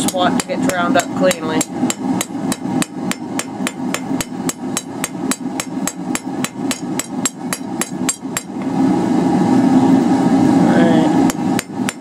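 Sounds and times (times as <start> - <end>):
hammer striking steel on anvil: 0.0 - 8.6, 11.3 - 12.0
steady low hum: 0.0 - 12.0.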